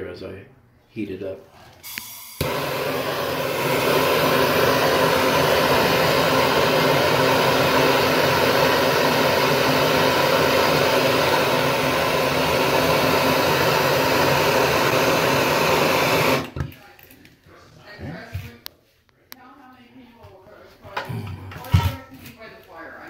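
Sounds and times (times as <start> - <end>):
torch flame hissing: 1.9 - 16.6.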